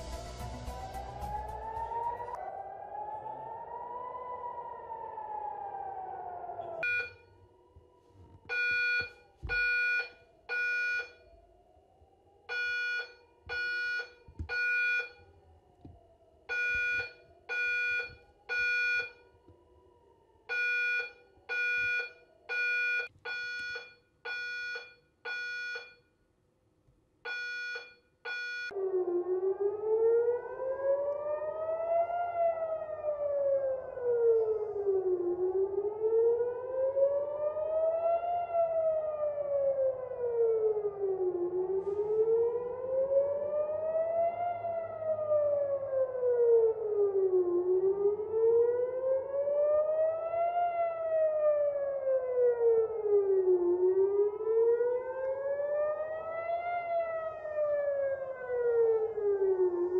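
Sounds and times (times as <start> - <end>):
air-raid siren wailing: 0.0 - 23.1, 28.7 - 59.9
electronic alarm beeping: 6.8 - 7.2, 8.5 - 11.2.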